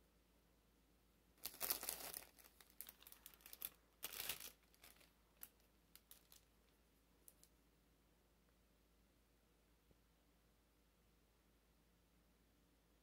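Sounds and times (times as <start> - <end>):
cellophane crinkling: 1.4 - 7.5.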